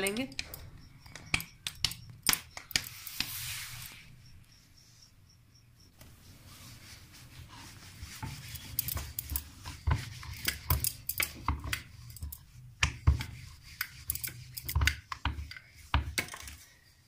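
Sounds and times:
rolling pin on wooden board: 7.6 - 16.5.

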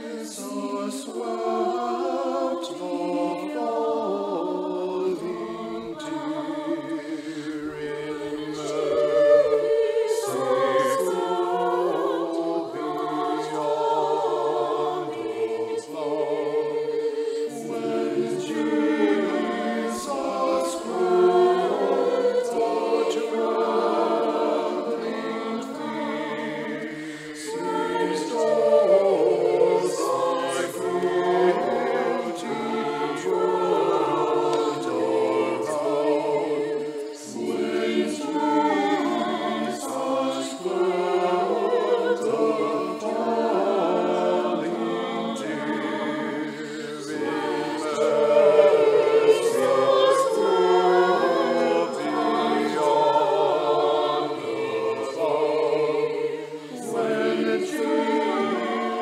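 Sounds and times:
choir singing in harmony: 0.0 - 59.0.

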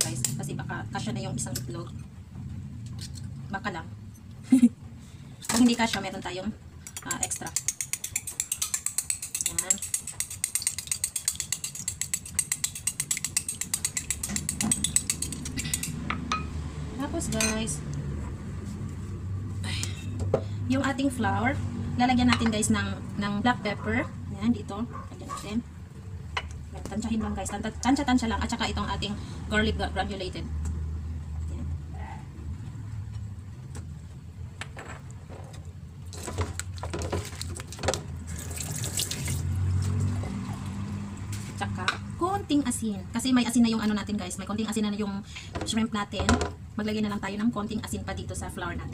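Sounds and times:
fork beating egg in glass bowl: 6.9 - 16.1
spice shaker rattling: 7.0 - 16.0.

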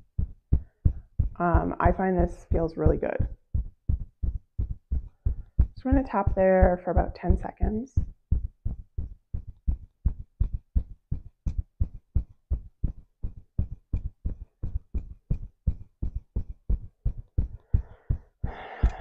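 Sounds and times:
fingertips tapping on chest: 0.0 - 19.0.

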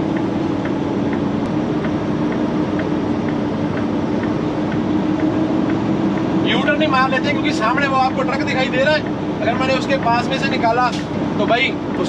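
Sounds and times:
truck diesel engine running: 0.0 - 12.0
light regular tick: 0.1 - 6.4.

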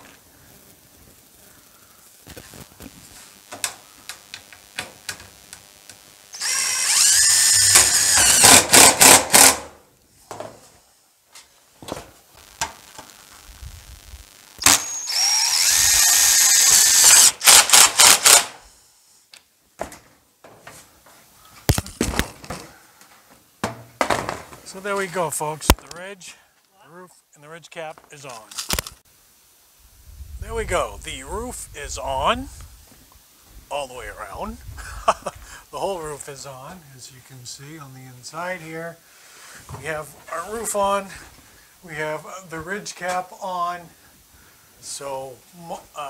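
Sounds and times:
impact driver driving screws: 6.4 - 9.7, 14.6 - 18.6.

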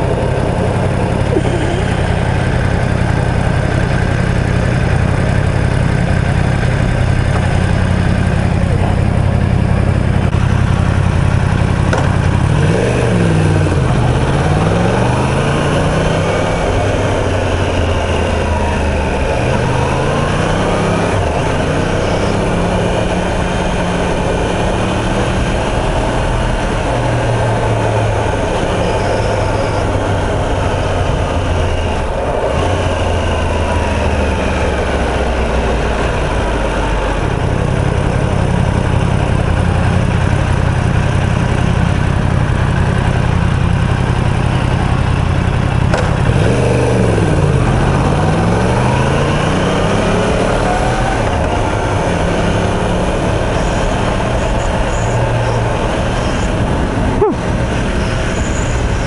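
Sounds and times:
wind noise: 0.0 - 4.6
motorcycle engine revving: 0.0 - 59.0.

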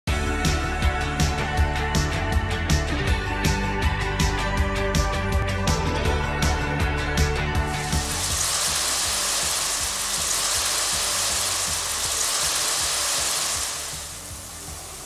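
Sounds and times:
onions sizzling in oil: 7.7 - 15.0.

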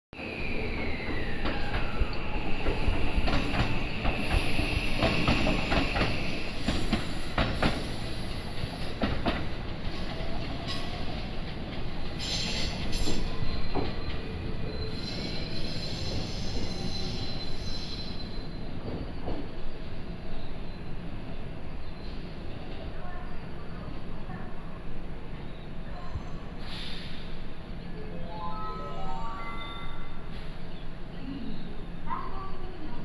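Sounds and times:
electric train running past: 0.2 - 22.5
high wheel squeal: 12.2 - 18.7.

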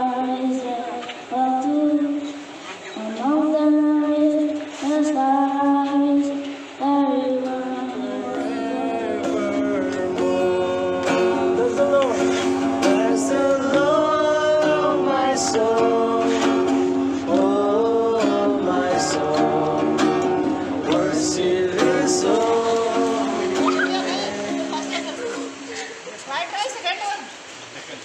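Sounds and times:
person singing: 0.0 - 25.6
plucked acoustic guitar: 5.8 - 26.0.

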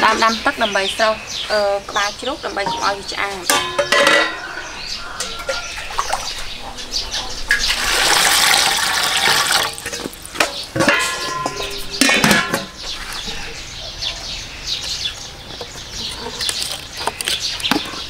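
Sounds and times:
metal bowl clanking: 2.6 - 13.6
water pouring into metal pot: 7.5 - 10.9.

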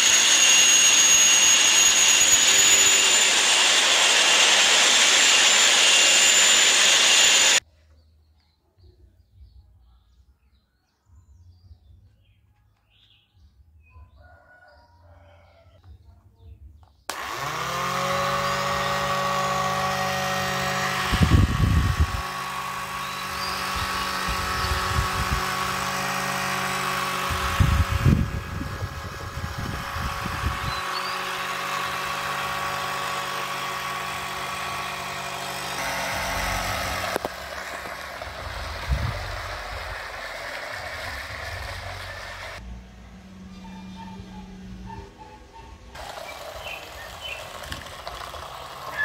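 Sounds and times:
small motors whining: 0.0 - 7.6, 17.1 - 44.9, 45.9 - 49.0.

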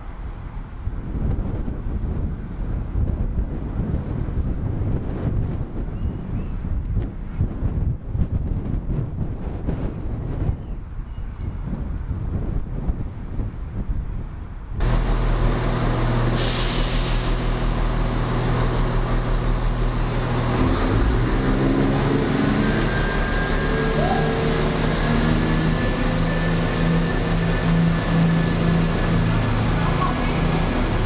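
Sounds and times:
diesel train engine drone: 12.0 - 31.0.

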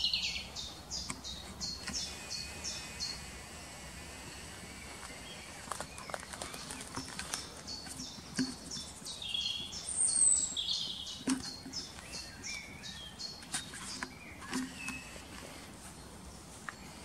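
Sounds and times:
songbird singing: 0.0 - 17.0
twigs and leaves crackling underfoot: 4.2 - 9.7.

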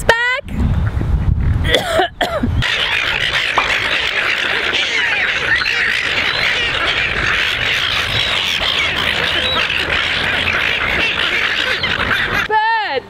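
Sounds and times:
gulls squawking: 2.5 - 12.6.

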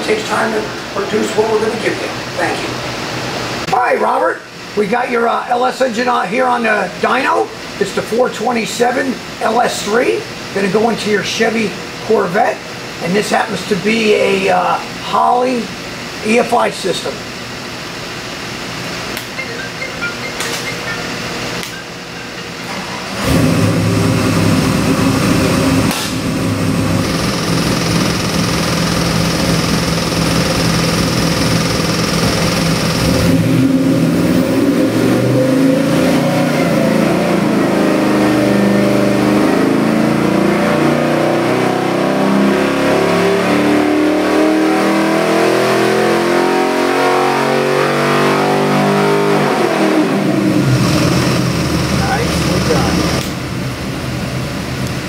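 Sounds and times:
engine running on a dyno: 0.0 - 3.7, 20.5 - 55.0.

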